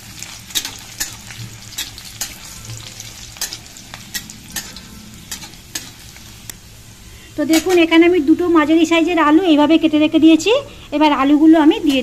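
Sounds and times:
garlic sizzling in hot oil: 0.0 - 9.8
spatula scraping and tapping pan: 0.5 - 6.2, 7.5 - 7.9.

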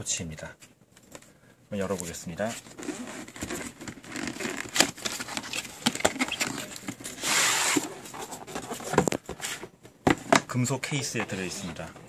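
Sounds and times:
cardboard box being handled: 2.0 - 9.7.

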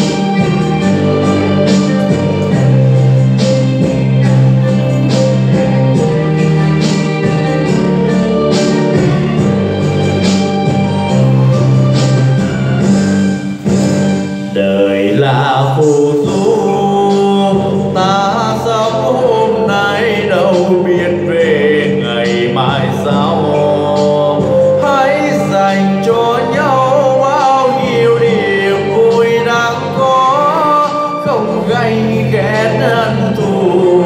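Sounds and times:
instrumental backing track: 0.0 - 34.0
man singing into a microphone: 14.5 - 34.0.

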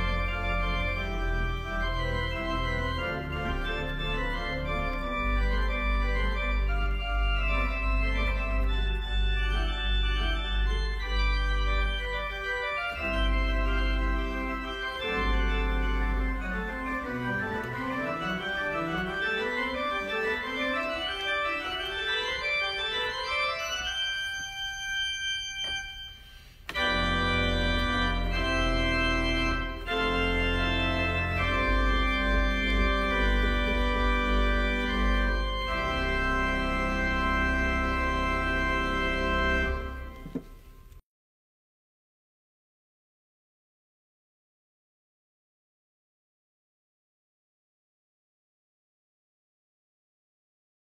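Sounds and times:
deep organ bass: 0.0 - 25.4, 26.7 - 40.2
rising organ run: 0.0 - 40.8
organ chords: 0.0 - 41.0.

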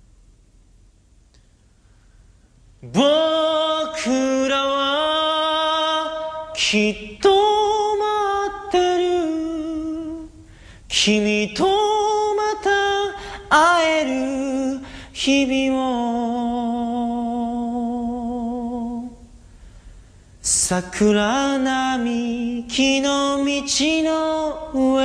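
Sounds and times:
person singing in long held notes: 2.8 - 19.3.

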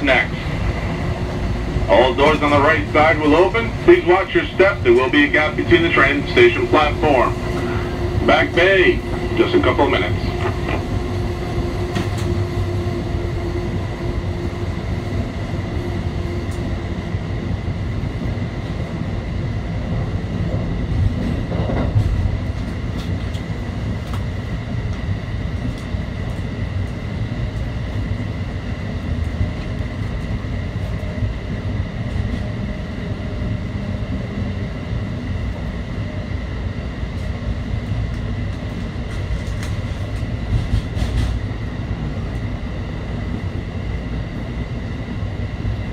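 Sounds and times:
train wheels rumbling on rail: 0.0 - 45.9
train bump: 7.0 - 13.2, 39.1 - 41.5.

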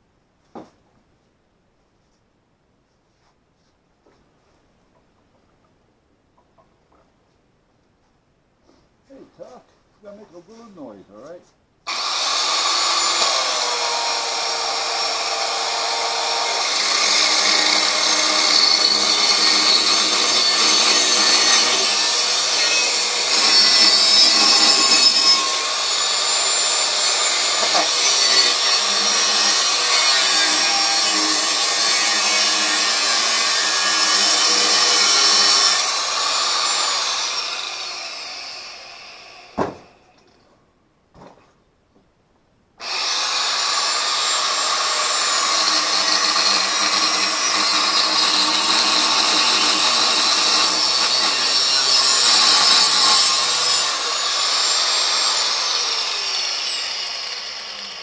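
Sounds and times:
angle grinder cutting steel: 11.9 - 39.6, 42.8 - 58.0
sharp knock: 39.6 - 39.9.

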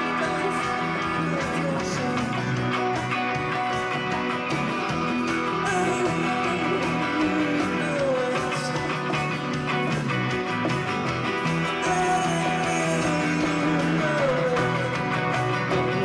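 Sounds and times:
man singing: 0.0 - 3.0, 5.6 - 10.2, 11.7 - 16.0
electric guitars strummed: 0.0 - 16.0.

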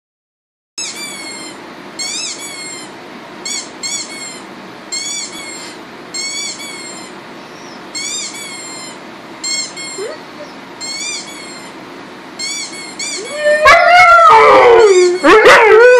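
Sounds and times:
rubber duck squeaks: 8.0 - 10.2.

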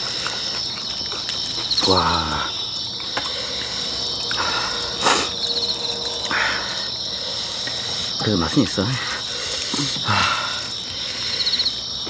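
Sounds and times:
soft chewing: 0.0 - 8.1
crickets chirping: 0.0 - 12.0.

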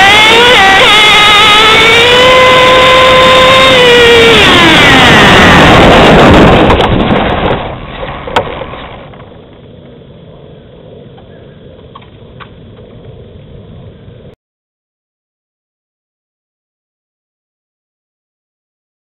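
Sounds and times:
rough road noise on dirt: 0.0 - 14.4.

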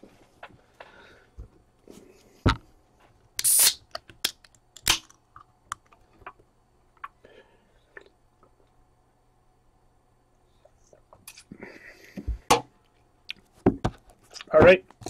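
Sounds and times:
can opening hiss: 3.4 - 4.0
person sipping: 7.0 - 8.6.

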